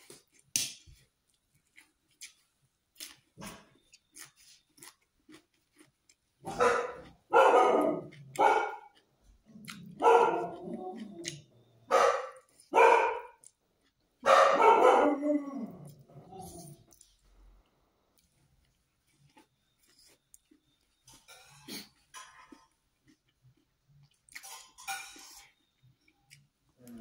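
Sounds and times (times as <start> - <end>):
chewing: 0.0 - 14.2, 15.7 - 27.0
dog barking: 6.4 - 9.0, 9.7 - 10.7, 11.9 - 13.4, 14.2 - 15.3.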